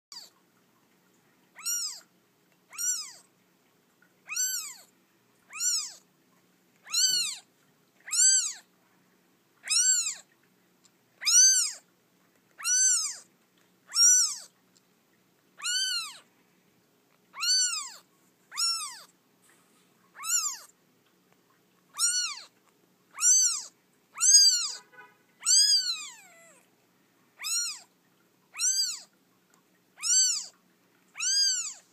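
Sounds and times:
kitten mewing: 0:01.6 - 0:02.1, 0:02.7 - 0:03.2, 0:04.3 - 0:04.9, 0:05.5 - 0:06.0, 0:06.8 - 0:07.5, 0:08.1 - 0:08.6, 0:09.6 - 0:10.2, 0:11.2 - 0:11.8, 0:12.6 - 0:13.3, 0:13.9 - 0:14.5, 0:15.6 - 0:16.2, 0:17.4 - 0:19.1, 0:20.2 - 0:20.7, 0:22.0 - 0:22.5, 0:23.2 - 0:24.8, 0:25.4 - 0:26.7, 0:27.4 - 0:27.9, 0:28.5 - 0:29.1, 0:30.0 - 0:30.5, 0:31.2 - 0:31.8.

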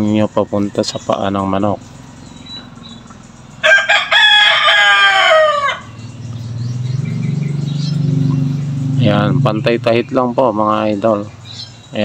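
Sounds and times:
rooster crowing: 0:03.5 - 0:06.3.

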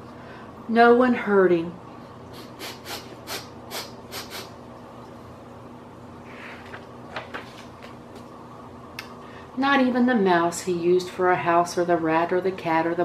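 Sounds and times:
short sniffs: 0:02.3 - 0:04.5
paper page rustle: 0:06.5 - 0:08.0.

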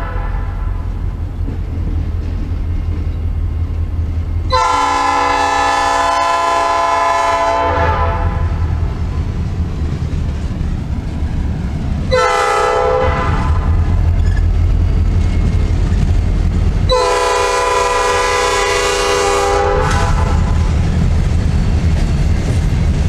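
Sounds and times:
locomotive air horn blasts: 0:00.0 - 0:00.9, 0:04.5 - 0:08.7, 0:12.1 - 0:13.8, 0:16.9 - 0:20.6
passing train rumble: 0:00.0 - 0:23.0.

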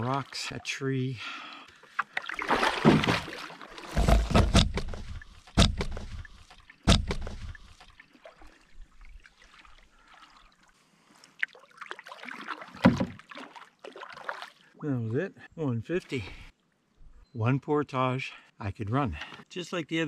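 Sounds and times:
paddle strokes splashing water: 0:01.8 - 0:14.6.

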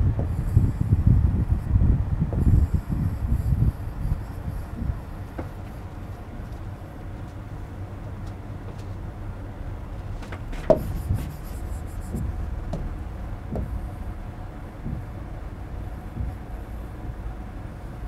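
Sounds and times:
low room rumble: 0:00.0 - 0:18.0
stylus knocking on whiteboard: 0:13.5 - 0:13.8.

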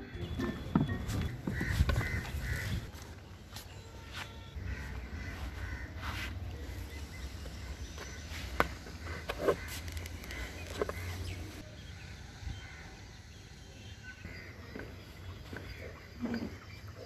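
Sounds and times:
faint bird calls: 0:03.8 - 0:11.7.

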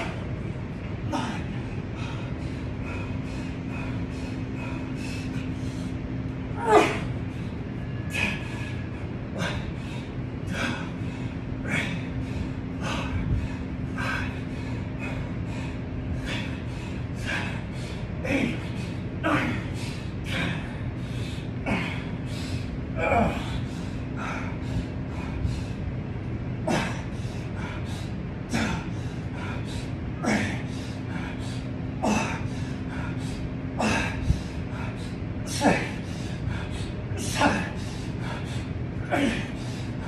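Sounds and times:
low hum: 0:00.0 - 0:40.0
man breathing hard: 0:00.0 - 0:40.0
man grunting: 0:01.0 - 0:02.2, 0:06.5 - 0:07.2, 0:18.2 - 0:20.8, 0:21.7 - 0:22.2, 0:23.0 - 0:23.7, 0:26.7 - 0:27.2, 0:30.2 - 0:30.9, 0:32.0 - 0:32.5, 0:33.8 - 0:34.9, 0:35.5 - 0:36.3, 0:37.2 - 0:38.4, 0:39.0 - 0:40.0.

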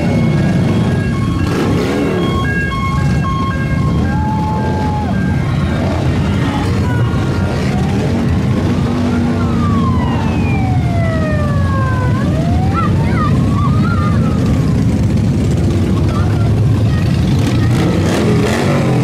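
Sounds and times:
siren wailing: 0:00.0 - 0:15.2
motorcycle engines rumbling: 0:00.0 - 0:19.0.

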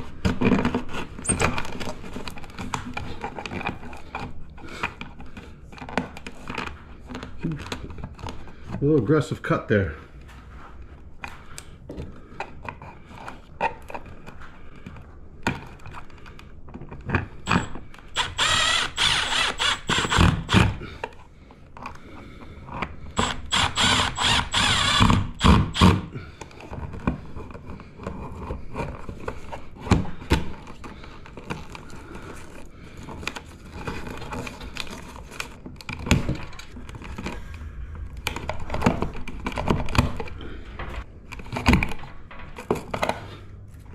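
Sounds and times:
cordless driver running: 0:17.5 - 0:20.8, 0:23.2 - 0:26.0.

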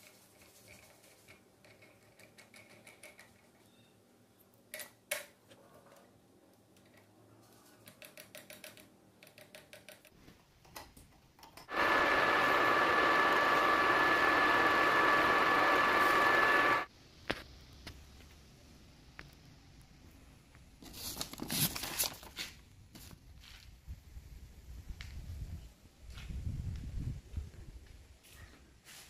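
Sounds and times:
lathe running with whine: 0:11.7 - 0:16.9.

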